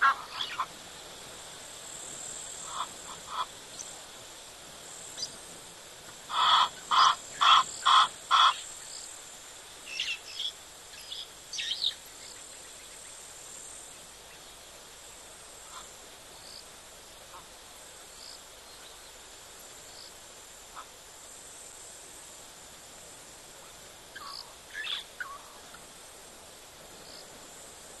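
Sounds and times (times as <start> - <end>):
insects chirring: 0.0 - 28.0.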